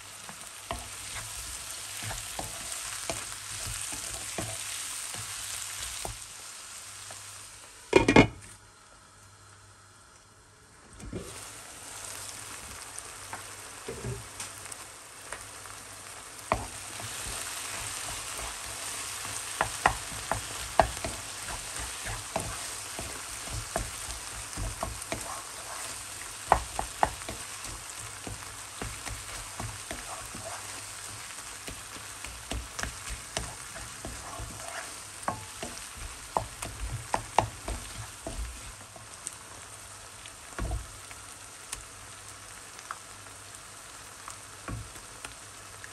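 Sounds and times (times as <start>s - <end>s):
food sizzling in a pan: 0.0s - 45.9s
spoon tapping and scraping pan: 0.7s - 6.2s, 16.5s - 38.8s.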